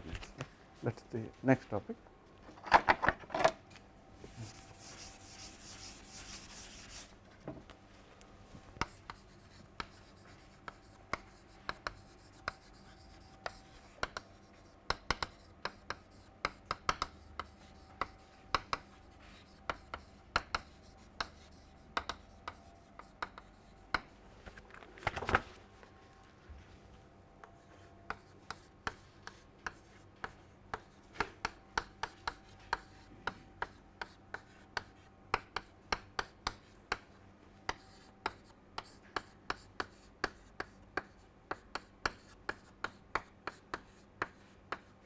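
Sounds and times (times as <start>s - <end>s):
chalk writing on board: 4.3s - 7.1s, 8.8s - 24.1s, 27.5s - 37.1s, 37.7s - 45.0s
duster wiping blackboard: 4.3s - 7.1s.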